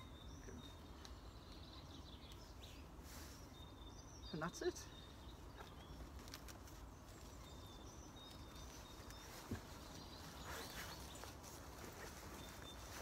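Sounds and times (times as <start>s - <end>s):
faint rustling: 5.2s - 13.0s.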